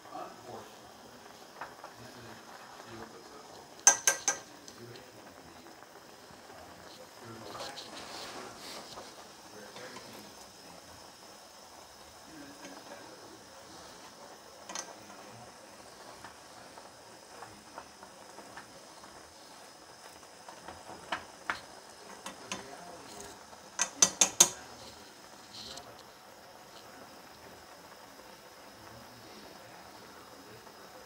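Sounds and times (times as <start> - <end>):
noodles boiling in broth: 0.0 - 31.0
chopsticks tapping a pot: 3.8 - 4.8, 14.7 - 15.2, 20.6 - 22.7, 23.8 - 24.8.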